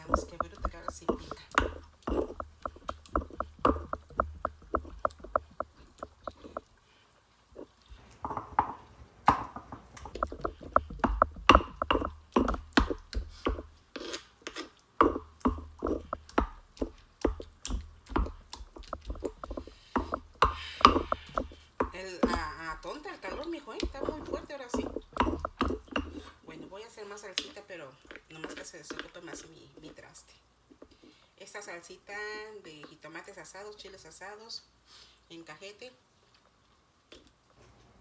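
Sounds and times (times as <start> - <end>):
stone pestle pounding in mortar: 0.0 - 6.6, 8.2 - 13.7, 15.0 - 26.3.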